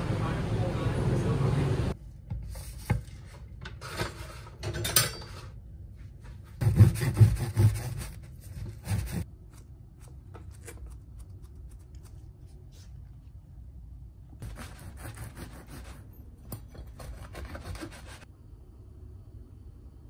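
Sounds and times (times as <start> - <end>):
bread knife sawing crust: 6.6 - 9.2, 14.4 - 16.0, 17.0 - 18.2.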